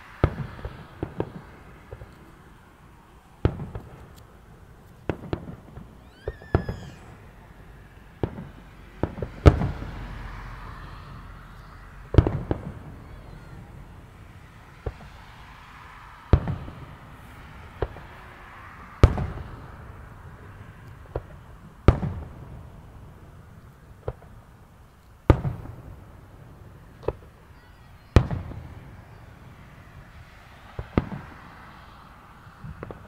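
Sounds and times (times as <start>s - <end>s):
firework shells booming: 3.4s - 7.2s, 8.2s - 10.3s, 11.6s - 13.7s.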